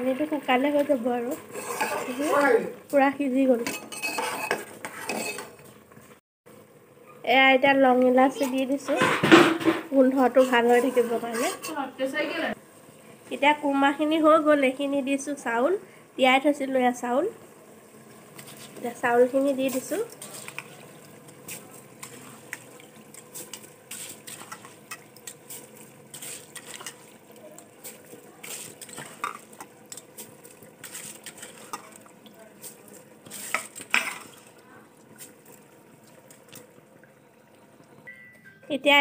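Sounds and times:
metal spatula scraping a pot: 0:01.3 - 0:02.6, 0:03.6 - 0:05.6, 0:10.2 - 0:12.0, 0:23.2 - 0:27.2, 0:30.8 - 0:32.0, 0:33.2 - 0:34.5
faint steady hum: 0:11.9 - 0:19.6.

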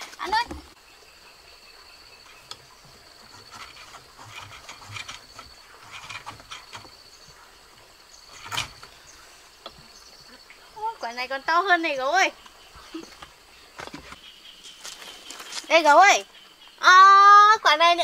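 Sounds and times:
high-pitched insect trill: 0:00.2 - 0:18.0
vegetation rustling and clicking: 0:02.3 - 0:07.4, 0:08.2 - 0:09.9, 0:12.4 - 0:16.3.

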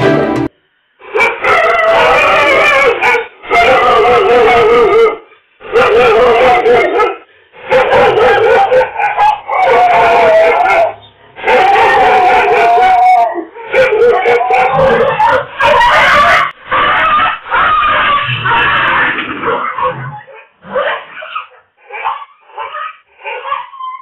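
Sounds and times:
dog howling in distress: 0:01.4 - 0:20.3.

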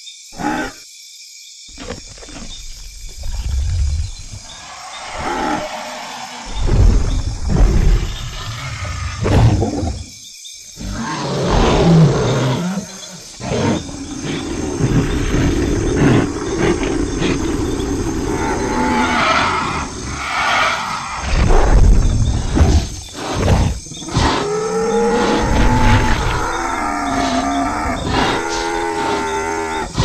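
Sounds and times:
dinosaur roaring and growling: 0:02.6 - 0:10.1, 0:10.8 - 0:30.0.

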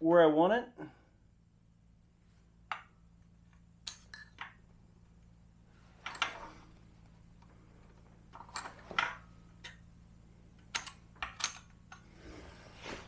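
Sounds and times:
metallic clicks and knocks of clamp parts: 0:10.6 - 0:12.1.

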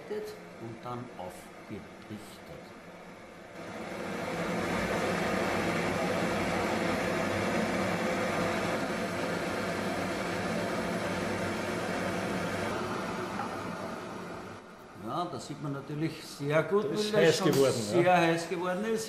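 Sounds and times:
torch flame hissing: 0:03.5 - 0:14.6.

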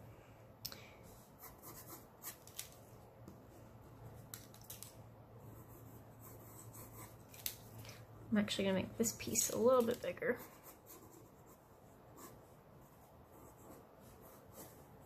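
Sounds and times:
pencil scratching on paper: 0:01.4 - 0:02.4, 0:05.4 - 0:07.2, 0:10.4 - 0:15.0.

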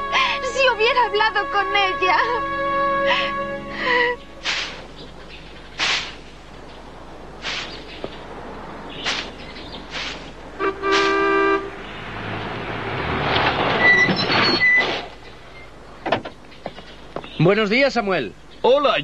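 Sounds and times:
old-fashioned car horn honking: 0:00.0 - 0:04.5, 0:10.6 - 0:12.0
car driving up: 0:02.4 - 0:17.4
broom sweeping pavement: 0:04.4 - 0:04.9, 0:05.8 - 0:06.3, 0:07.4 - 0:08.0, 0:09.0 - 0:11.4
short high squeaks: 0:13.7 - 0:15.7.

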